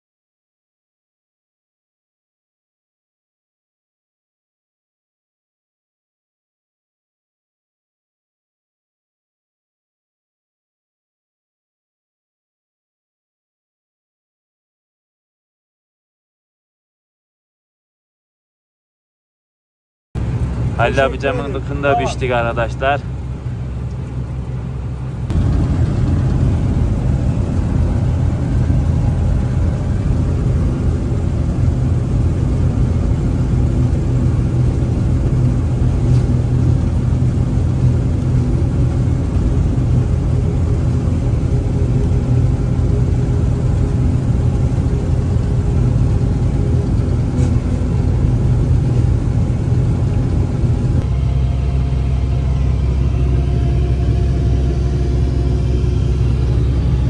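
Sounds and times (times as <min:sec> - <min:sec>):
diesel engine running: 0:20.2 - 0:57.0.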